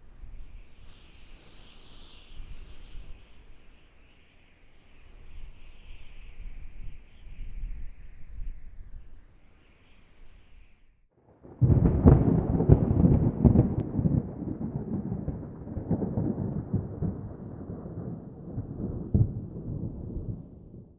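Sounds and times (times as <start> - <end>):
thunder crack and rumble: 11.3 - 20.9.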